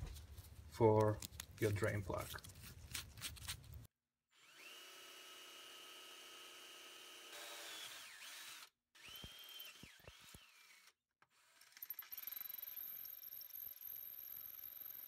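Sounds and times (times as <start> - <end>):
electric drill boring through metal: 4.4 - 15.0.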